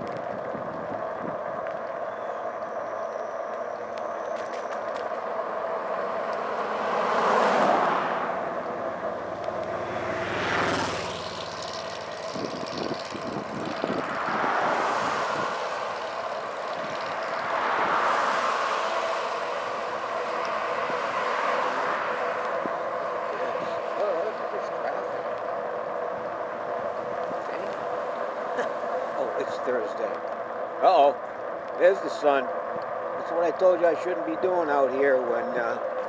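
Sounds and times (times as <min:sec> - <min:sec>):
motorcycle overtaking: 0:00.0 - 0:33.2
vehicles passing: 0:00.0 - 0:36.0
steady background hum: 0:11.1 - 0:36.0.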